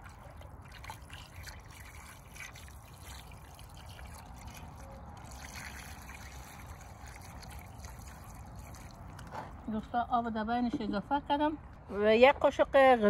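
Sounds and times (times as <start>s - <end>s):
water trickling onto chicken: 0.0s - 9.3s.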